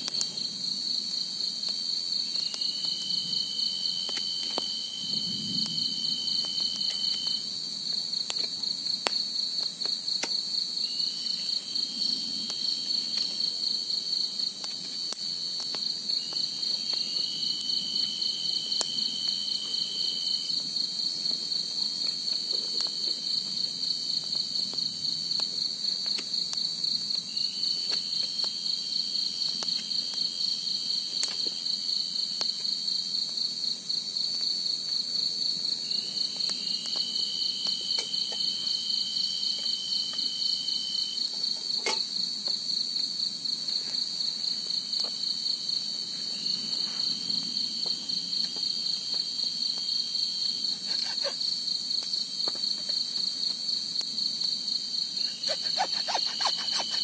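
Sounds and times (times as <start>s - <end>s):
insects trilling: 0.0s - 57.0s
lower insect call: 0.0s - 57.0s.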